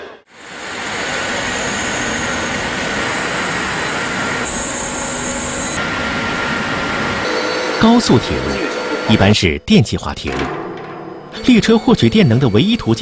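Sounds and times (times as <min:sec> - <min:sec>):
whirring machine with high hiss: 0:00.4 - 0:09.4.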